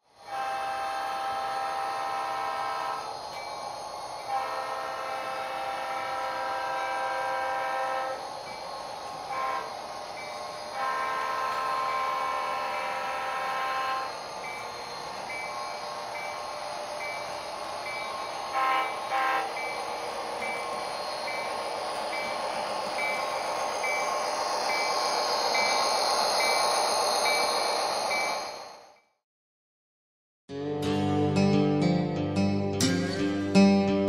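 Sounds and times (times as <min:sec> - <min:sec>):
train running noise: 0:00.0 - 0:29.1
locomotive horn: 0:00.1 - 0:03.2, 0:04.2 - 0:08.4, 0:09.1 - 0:10.0, 0:10.6 - 0:14.9, 0:17.4 - 0:20.9
locomotive bell ringing: 0:02.9 - 0:28.9.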